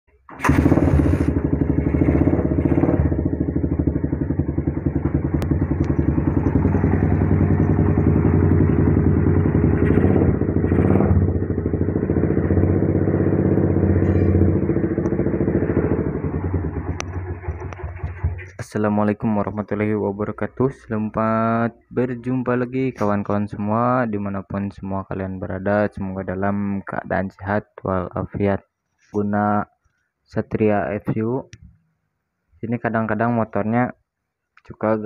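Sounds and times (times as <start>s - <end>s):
motorcycle engine running: 0.3s - 18.6s.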